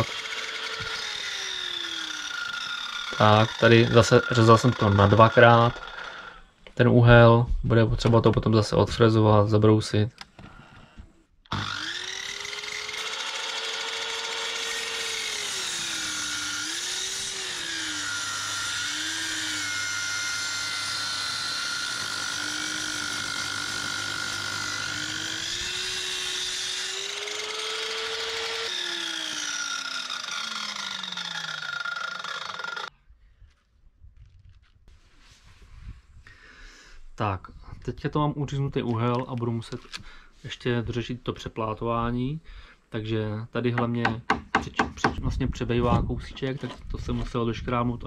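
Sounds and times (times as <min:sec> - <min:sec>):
mitre saw cutting timber: 0:00.0 - 0:06.4, 0:11.5 - 0:32.9.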